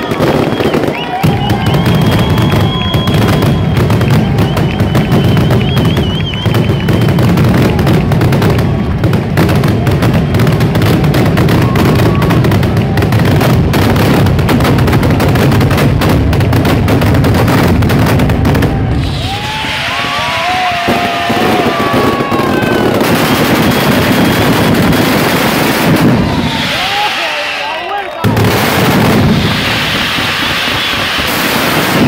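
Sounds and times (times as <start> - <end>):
firecracker bangs rattling: 0.0 - 32.0
whistling fireworks falling: 0.0 - 32.0
low booming: 0.5 - 27.6, 28.2 - 32.0.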